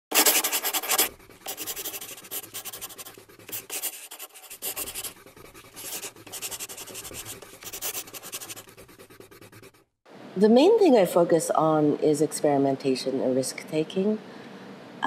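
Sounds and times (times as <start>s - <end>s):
chalk scratching on chalkboard: 0.1s - 9.9s.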